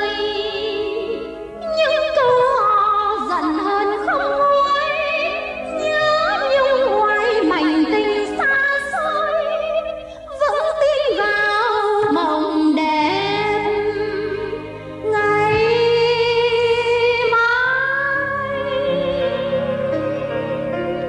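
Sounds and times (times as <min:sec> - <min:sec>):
woman singing ballad: 0:00.0 - 0:20.1
instrumental accompaniment: 0:00.0 - 0:21.0.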